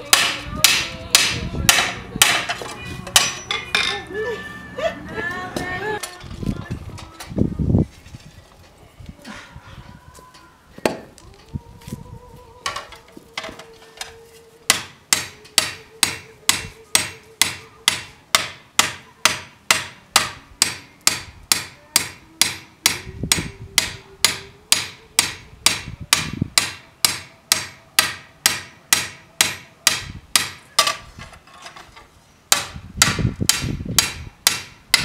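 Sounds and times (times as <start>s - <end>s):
hammer striking steel on anvil: 0.1s - 4.0s, 14.7s - 31.0s.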